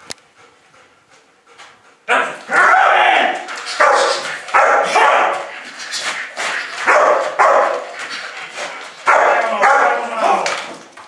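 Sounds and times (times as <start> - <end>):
dog barking aggressively: 2.1 - 10.4.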